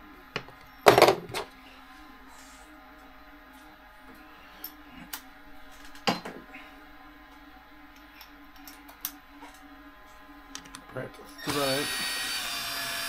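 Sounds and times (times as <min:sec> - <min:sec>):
tools clicking and tapping: 0:10.5 - 0:10.9.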